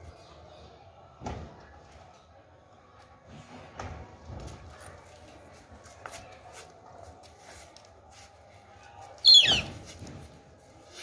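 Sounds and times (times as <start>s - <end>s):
faint scuffling and clicks: 4.4s - 11.0s.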